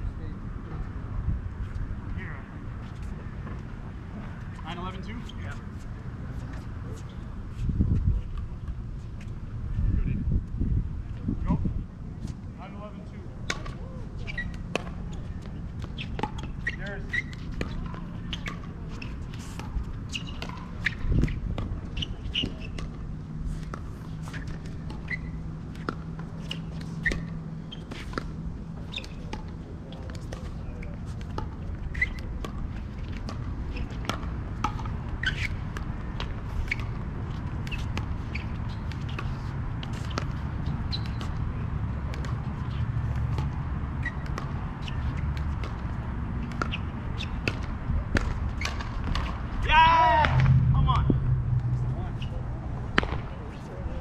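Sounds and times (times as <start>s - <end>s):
sneakers squeaking on court: 13.5s - 41.5s, 42.1s - 49.5s
low rumble: 49.9s - 53.5s
low thump: 50.2s - 53.3s.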